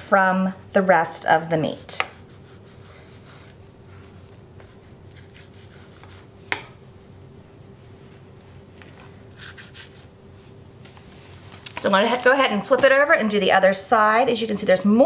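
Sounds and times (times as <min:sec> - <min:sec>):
knife scraping raw meat: 0:01.6 - 0:04.4, 0:05.1 - 0:06.6, 0:08.8 - 0:10.1.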